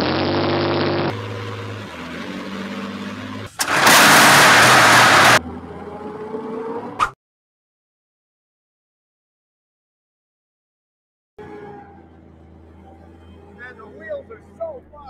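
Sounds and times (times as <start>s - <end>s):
deep engines running: 0.0s - 7.0s, 11.4s - 15.0s
harsh rough diesel engine: 0.0s - 7.0s.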